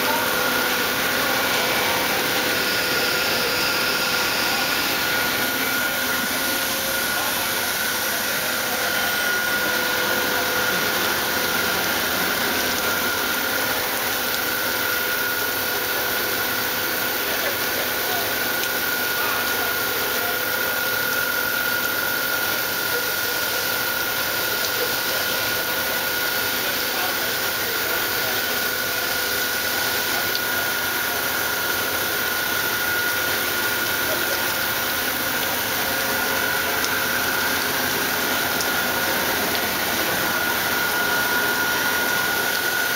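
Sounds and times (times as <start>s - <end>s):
high spindle whine: 0.0s - 15.4s, 32.5s - 42.9s
coolant spray hissing: 0.0s - 42.9s.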